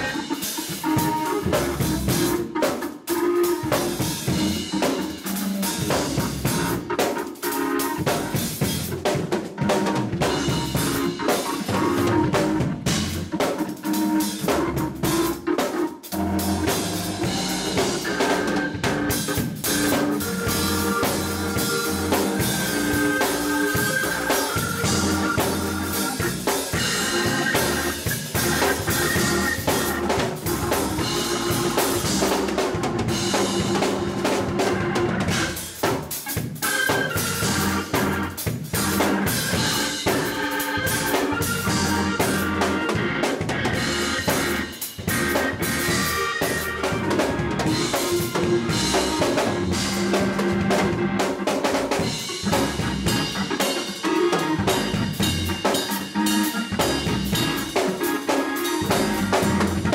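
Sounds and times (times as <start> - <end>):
drum kit groove with cymbals: 0.0 - 59.9
hammond organ chords: 0.0 - 59.9.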